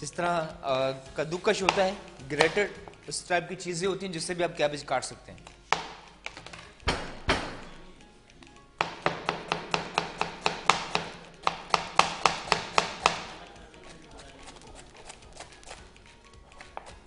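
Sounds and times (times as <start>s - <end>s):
knife chopping cabbage on board: 1.6s - 2.8s, 8.8s - 17.0s.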